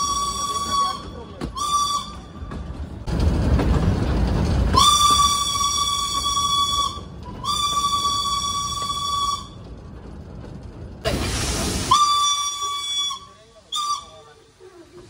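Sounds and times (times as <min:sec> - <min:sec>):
loud rush of steam hiss: 0:11.0 - 0:15.0
steam whistle blast: 0:11.8 - 0:14.3.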